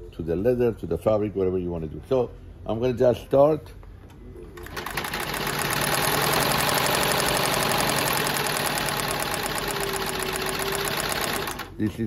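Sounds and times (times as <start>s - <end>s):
sewing machine stitching: 4.6s - 11.8s.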